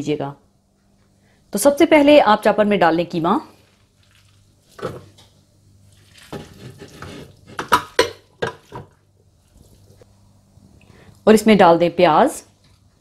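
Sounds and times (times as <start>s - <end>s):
utensils clinking and scraping bowl: 5.9s - 8.9s.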